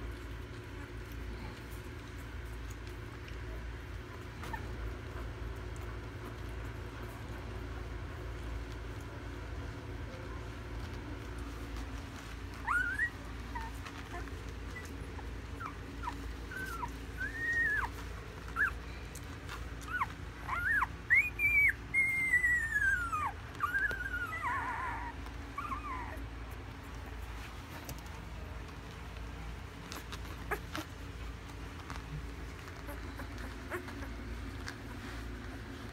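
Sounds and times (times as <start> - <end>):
puppies squeaking and whimpering: 12.0 - 28.0, 29.7 - 35.9.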